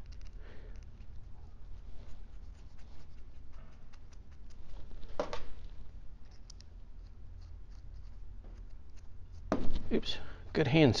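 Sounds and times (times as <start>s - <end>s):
screw scraping and clicking: 0.0s - 1.3s, 6.2s - 9.4s
steady low hum: 0.0s - 11.0s.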